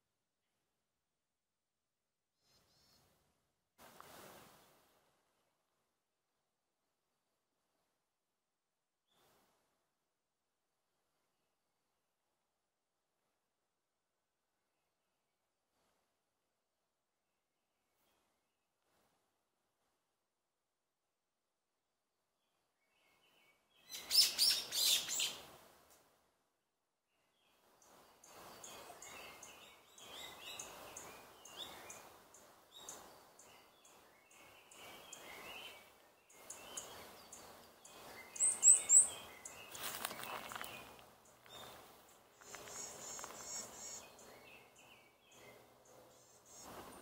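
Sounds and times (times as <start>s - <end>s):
forest birds singing and chirping: 22.4s - 25.5s, 27.1s - 47.0s.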